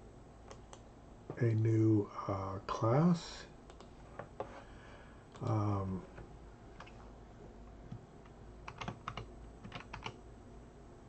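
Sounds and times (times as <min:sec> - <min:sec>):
computer keyboard keystrokes: 0:03.7 - 0:04.0, 0:07.9 - 0:10.2.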